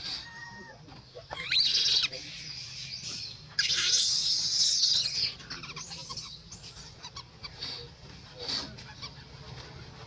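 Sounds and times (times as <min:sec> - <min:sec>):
baby monkey screaming: 0:01.3 - 0:07.6.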